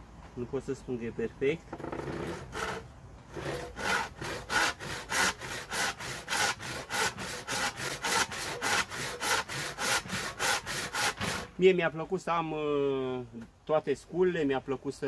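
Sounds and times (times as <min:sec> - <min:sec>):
hand saw cutting wood: 0:01.8 - 0:11.6.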